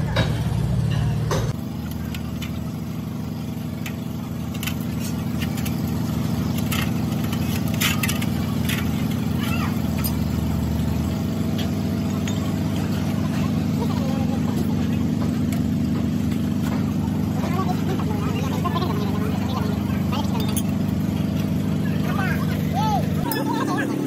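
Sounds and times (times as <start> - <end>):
motor idling: 0.0 - 24.0
metal clinks and fluid sloshes: 1.6 - 13.8, 18.7 - 21.8.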